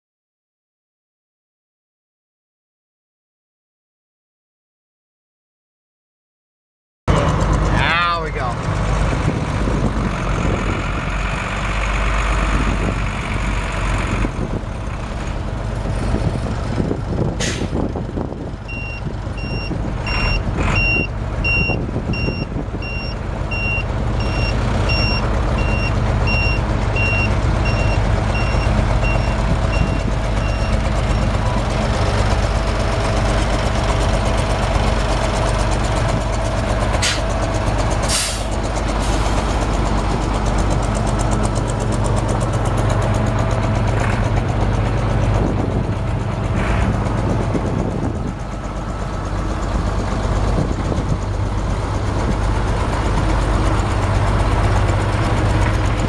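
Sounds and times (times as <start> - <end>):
diesel truck engine running: 7.1 - 56.0
backup alarm beeping: 18.7 - 31.3
air hiss bursts: 38.1 - 38.5.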